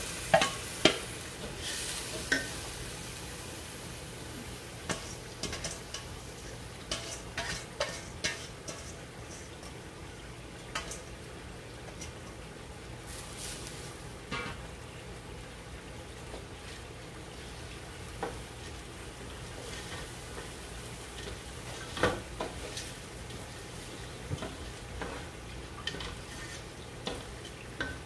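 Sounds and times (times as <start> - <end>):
rice sizzling in oil: 0.0 - 28.0
wooden spatula scraping pot: 4.8 - 9.8, 18.2 - 28.0.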